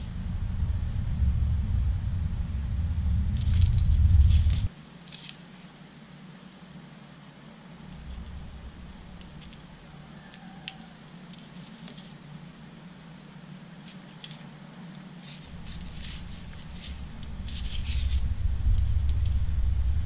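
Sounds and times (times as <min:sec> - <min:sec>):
low rumble: 0:00.0 - 0:04.7, 0:07.9 - 0:09.8, 0:15.5 - 0:20.0.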